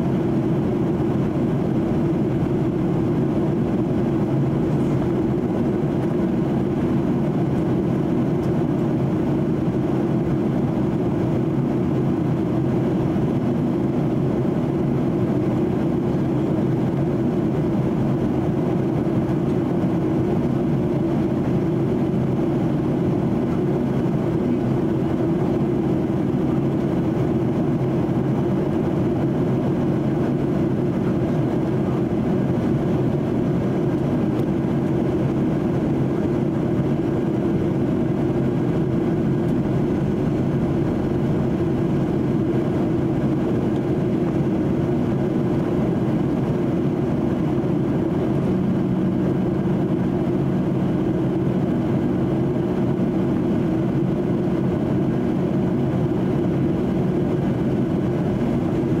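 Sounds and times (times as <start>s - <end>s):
jet engines low roar: 0.0s - 59.0s.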